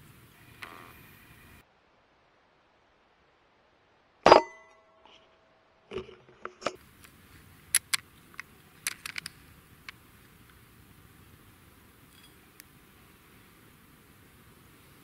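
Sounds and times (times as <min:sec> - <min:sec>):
rifle clicks and knocks: 0:07.7 - 0:10.0.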